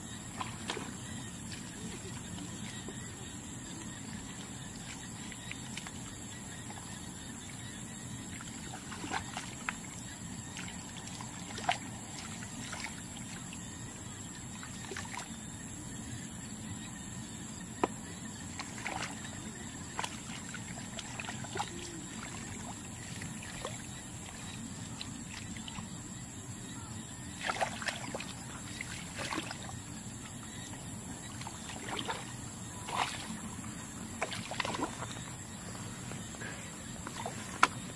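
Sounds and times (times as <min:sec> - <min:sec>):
water sloshing and splashing: 0:00.0 - 0:15.4, 0:17.8 - 0:37.9.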